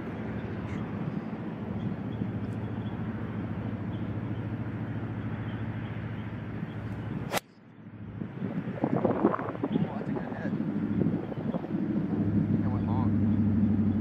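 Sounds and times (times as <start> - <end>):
golf club striking ball: 6.9 - 7.5
wind noise on microphone: 8.0 - 14.0.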